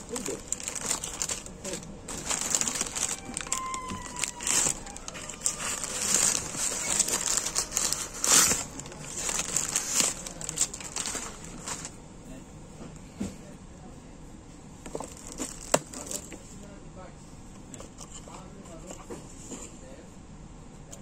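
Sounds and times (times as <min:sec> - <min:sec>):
plastic packaging crinkling: 0:00.0 - 0:11.9, 0:14.9 - 0:16.3
plastic rubbing squeak: 0:00.0 - 0:11.9.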